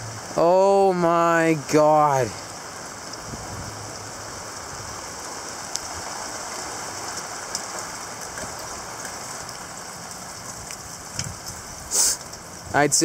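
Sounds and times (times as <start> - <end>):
strong wind rushing: 3.1 - 6.9.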